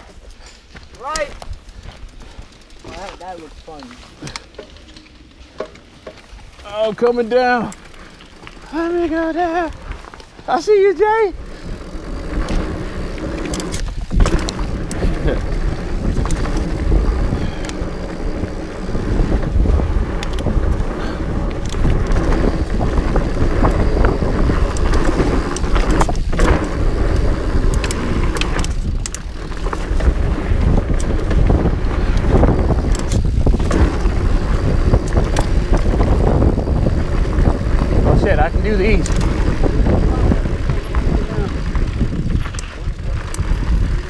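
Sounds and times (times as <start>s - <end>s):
bike clicks and rattles: 0.0s - 44.0s
bike tyres rumbling on dirt: 0.0s - 44.0s
wind on microphone: 11.4s - 44.0s.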